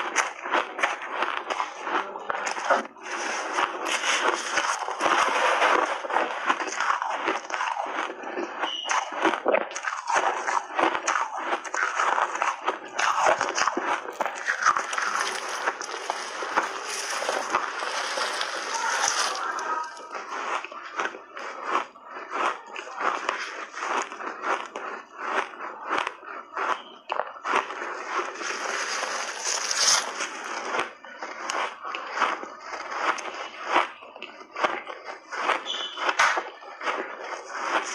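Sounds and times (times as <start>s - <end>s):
crunchy ice chewing: 0.0s - 37.9s.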